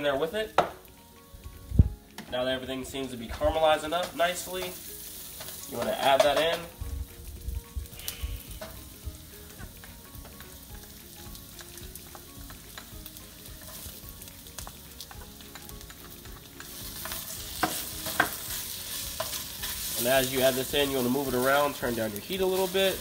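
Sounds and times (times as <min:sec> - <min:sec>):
vegetables sizzling in frying pan: 0:00.0 - 0:23.0
spatula tapping and scraping pan: 0:03.3 - 0:06.8, 0:08.5 - 0:10.7, 0:11.4 - 0:21.5.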